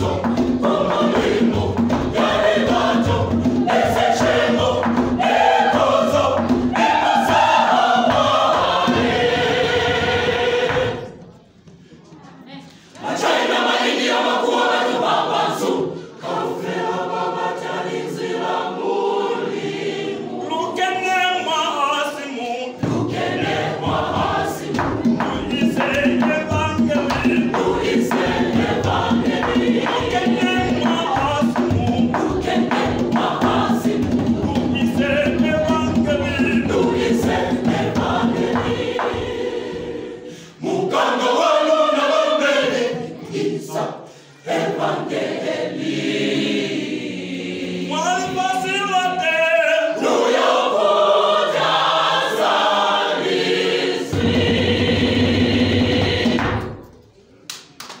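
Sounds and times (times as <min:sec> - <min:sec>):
hand drums: 0:00.0 - 0:11.2, 0:22.8 - 0:39.9, 0:54.1 - 0:56.9
choir singing gospel: 0:00.0 - 0:57.4.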